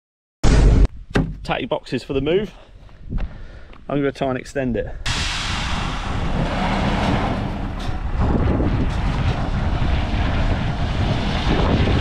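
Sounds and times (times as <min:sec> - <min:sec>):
truck engine running: 0:05.6 - 0:12.0.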